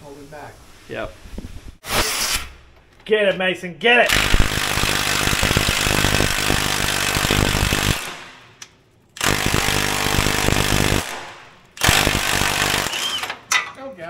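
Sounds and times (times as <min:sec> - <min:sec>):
impact wrench hammering: 0:04.1 - 0:13.8.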